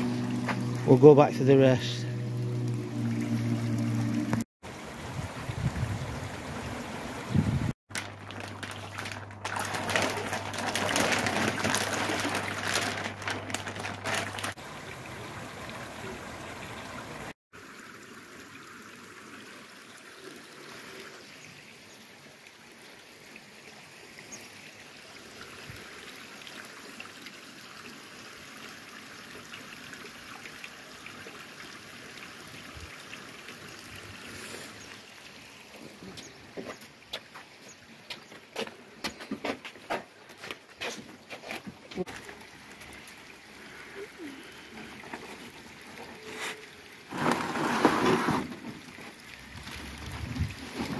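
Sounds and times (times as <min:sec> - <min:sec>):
water trickling into pond: 0:00.0 - 0:50.9.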